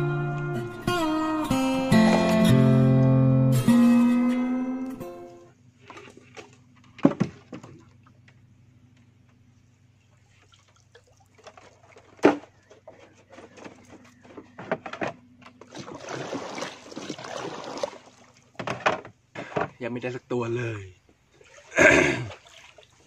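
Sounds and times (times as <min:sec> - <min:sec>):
water splashing and dripping: 0:10.2 - 0:12.2, 0:15.6 - 0:18.6, 0:21.3 - 0:23.0.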